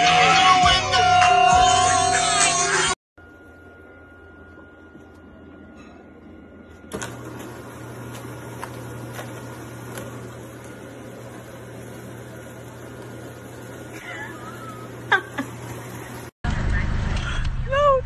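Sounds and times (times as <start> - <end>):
litter box rake motor hum: 6.9 - 16.4.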